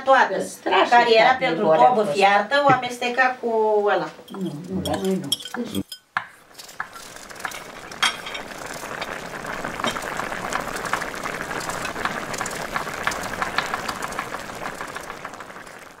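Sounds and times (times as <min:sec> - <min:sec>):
steady hiss: 0:05.7 - 0:16.0.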